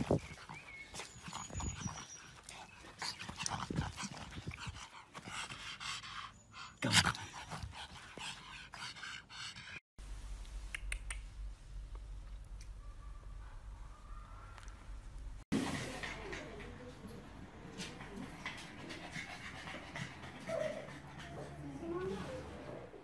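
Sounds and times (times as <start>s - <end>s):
dog panting: 0.0s - 9.8s, 17.7s - 22.2s
low steady hum: 10.0s - 15.4s.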